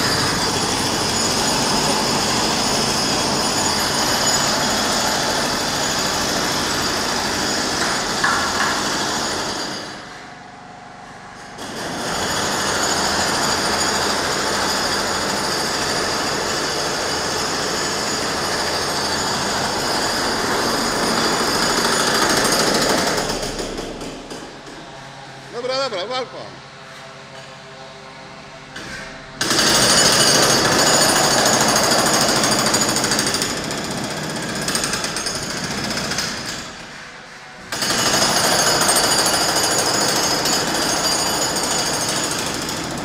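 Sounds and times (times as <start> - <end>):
power tool running loudly: 0.0 - 10.1.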